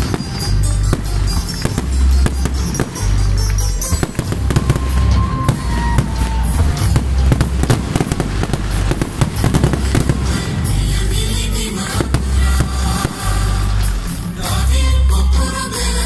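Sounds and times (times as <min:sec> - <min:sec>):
firework shells bursting: 0:00.0 - 0:10.8
music with heavy bass: 0:00.0 - 0:16.0.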